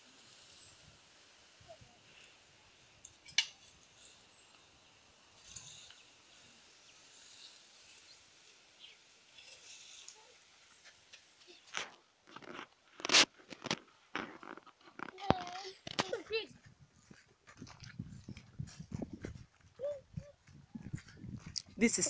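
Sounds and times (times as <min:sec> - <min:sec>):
faint high hiss: 0:00.0 - 0:14.2
soft rustles: 0:03.6 - 0:22.0.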